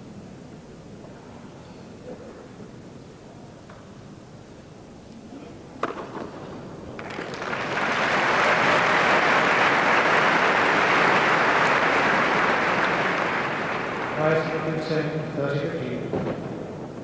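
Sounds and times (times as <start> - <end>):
crowd applauding: 6.9 - 15.5.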